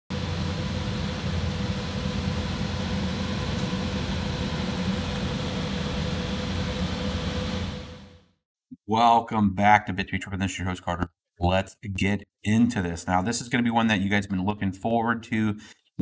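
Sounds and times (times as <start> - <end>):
faint steady whine: 0.1 - 8.0
cooling fans whirring: 0.1 - 8.1.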